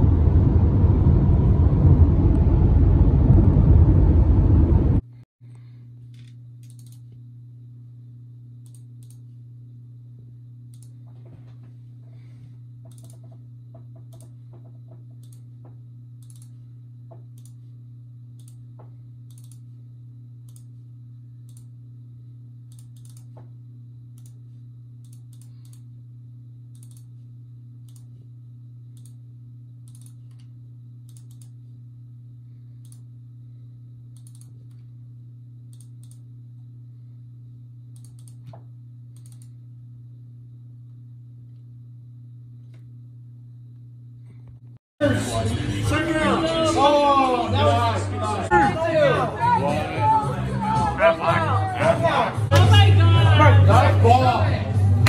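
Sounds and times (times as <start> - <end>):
steady low hum: 0.0 - 55.0
computer mouse clicks: 6.1 - 7.1, 8.6 - 9.2, 10.7 - 11.0, 12.9 - 13.3, 14.1 - 14.4, 15.2 - 15.5, 16.2 - 16.6, 17.3 - 17.6, 18.4 - 18.6, 19.3 - 19.6, 20.5 - 20.7, 21.5 - 21.7, 22.7 - 23.4, 24.2 - 24.4, 25.0 - 25.8, 26.7 - 27.1, 29.0 - 29.2, 29.9 - 31.6, 34.2 - 34.8, 35.7 - 36.2, 38.0 - 38.5, 39.1 - 39.5.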